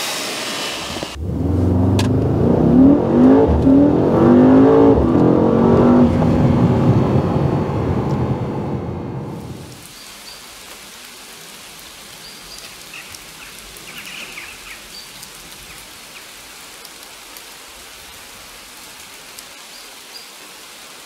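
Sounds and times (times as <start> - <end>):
steady hiss: 0.0 - 1.2.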